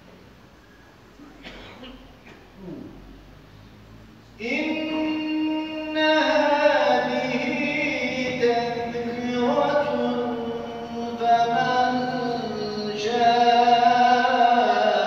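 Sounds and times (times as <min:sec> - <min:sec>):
man chanting a hymn: 0:04.3 - 0:15.0.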